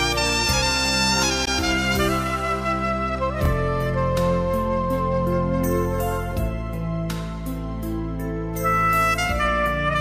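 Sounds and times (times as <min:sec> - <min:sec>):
horn melody: 0:00.0 - 0:06.8, 0:08.6 - 0:10.0.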